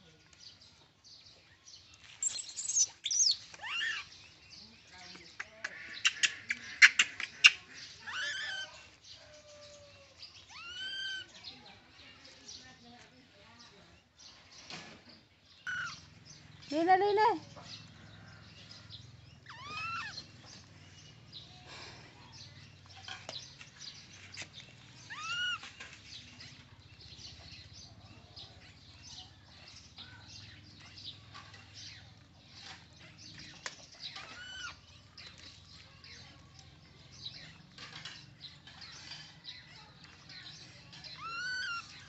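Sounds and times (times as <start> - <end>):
baby monkeys squealing: 2.2 - 4.2, 5.7 - 11.3, 15.6 - 16.1, 19.4 - 20.3, 25.0 - 25.8, 34.1 - 34.8, 41.2 - 42.0.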